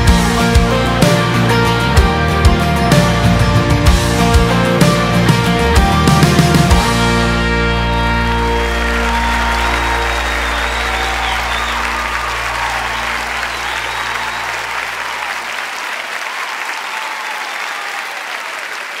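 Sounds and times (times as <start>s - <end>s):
band chord ringing: 0.0s - 14.8s
audience applauding: 0.0s - 19.0s.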